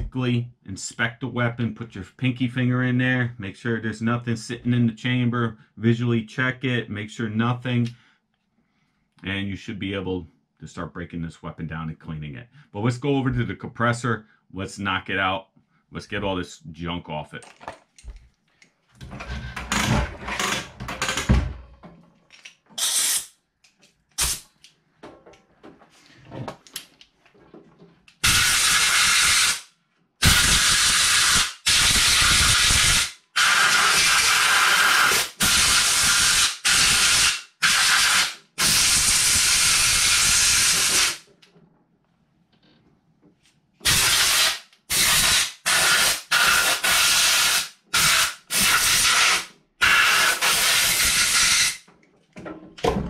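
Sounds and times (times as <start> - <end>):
hose fitting clicks and clatter: 17.4 - 18.8, 21.9 - 22.8
air blow gun hissing blasts: 28.2 - 29.6.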